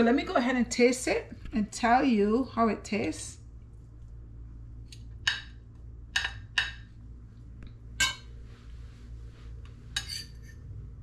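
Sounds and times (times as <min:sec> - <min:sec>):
spoon scraping a dish: 0:10.0 - 0:10.7.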